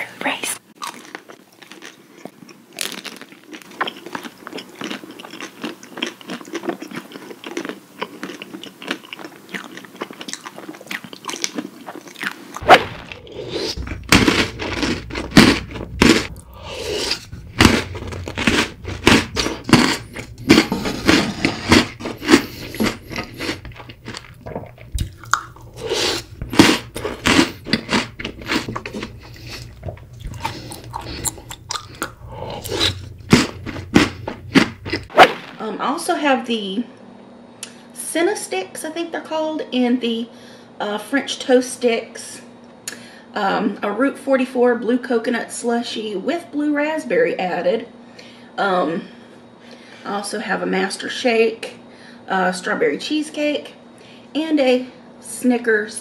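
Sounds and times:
chewing mouthfuls: 0.8s - 35.1s
crunching chocolate bar: 0.8s - 35.7s.

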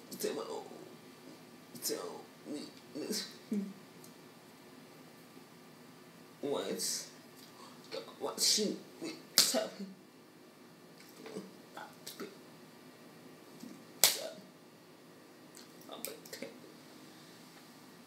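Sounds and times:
loud sharp clicks: 14.0s - 14.3s.

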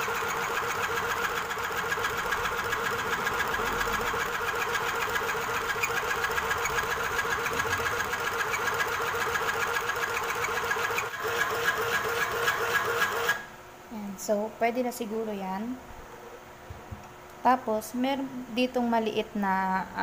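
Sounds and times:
fast mechanical ticking: 0.0s - 13.4s
sewing machine motor whirring: 0.0s - 13.5s.

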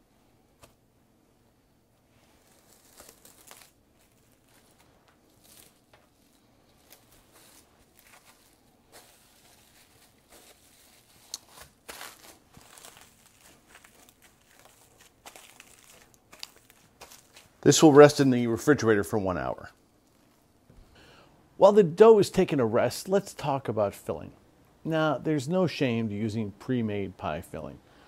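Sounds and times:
plastic wrap crinkling: 2.0s - 17.6s.

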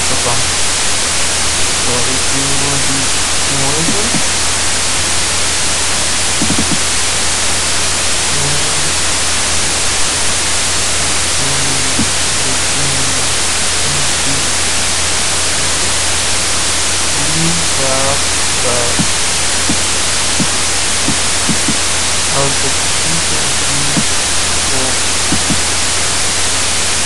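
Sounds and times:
faint voice: 0.0s - 0.6s, 1.8s - 4.2s, 8.3s - 9.9s, 11.0s - 14.6s, 15.5s - 16.0s, 17.2s - 19.1s, 22.3s - 24.1s, 24.7s - 25.5s
faint low tones: 0.0s - 26.3s
low electrical hum: 0.0s - 27.0s
steady hiss: 0.0s - 27.0s.

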